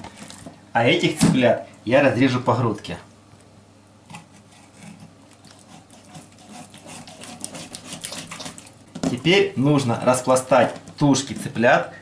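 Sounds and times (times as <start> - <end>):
knife crunching through chicken: 4.1 - 8.8.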